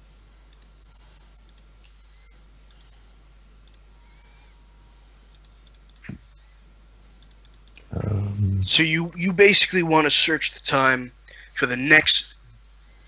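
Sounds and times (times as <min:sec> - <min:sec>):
steady low hum: 0:00.0 - 0:13.0
computer keys clicking: 0:00.5 - 0:00.7, 0:05.3 - 0:06.1, 0:07.2 - 0:07.8.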